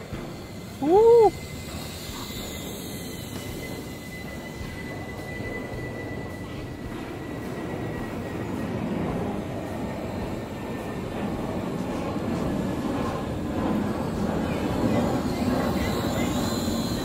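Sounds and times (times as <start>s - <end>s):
thin high whine: 0.0s - 17.0s
toy drone propellers buzzing: 0.7s - 4.9s.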